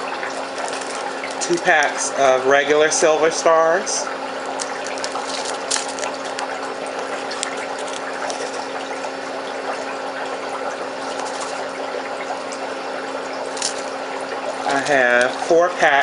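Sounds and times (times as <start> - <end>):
background hum and hiss: 0.0 - 16.0
plastic bags clicking: 0.2 - 2.0, 4.4 - 8.8, 13.5 - 14.0.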